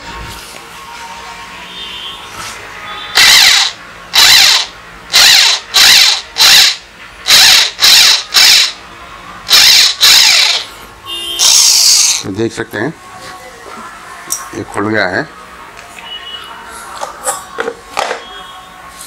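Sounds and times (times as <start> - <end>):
drill motor whining in bursts: 3.2 - 8.8, 9.5 - 10.6.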